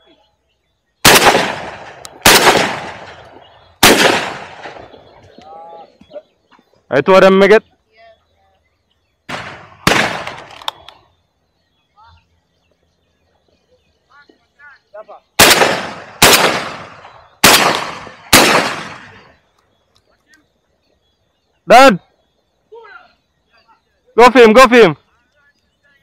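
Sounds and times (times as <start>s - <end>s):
shotgun shots: 1.0s - 5.1s, 9.3s - 10.8s, 15.4s - 19.4s.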